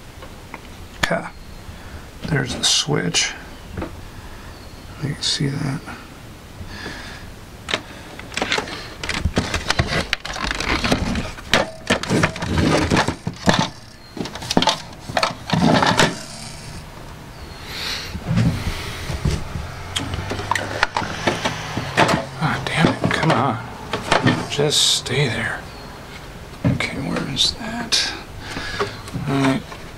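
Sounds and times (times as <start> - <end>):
low steady hum: 0.0 - 29.9
plastic clicks and clatter: 7.7 - 16.5.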